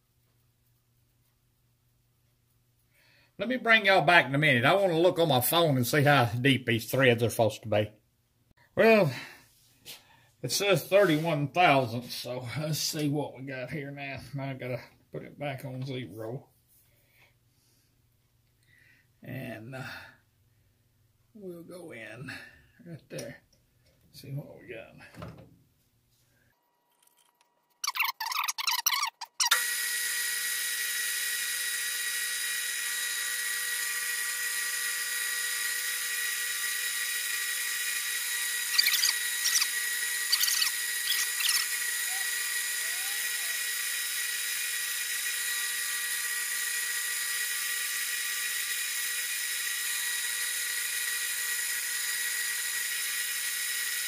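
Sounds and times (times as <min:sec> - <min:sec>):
lathe high-pitched whine: 0:29.5 - 0:54.0.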